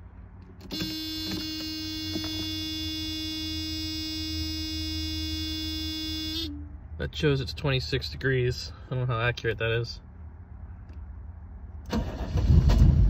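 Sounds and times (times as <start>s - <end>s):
dashboard warning buzzer: 0.6s - 6.5s.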